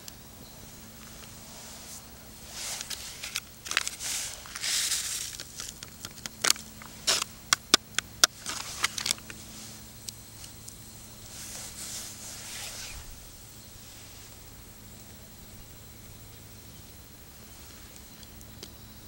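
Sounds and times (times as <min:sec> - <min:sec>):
plastic packet crinkling: 0:02.8 - 0:09.4.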